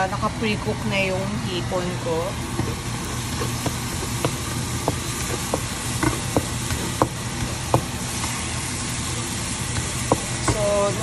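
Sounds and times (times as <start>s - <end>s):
garlic sizzling in butter: 1.9s - 11.0s.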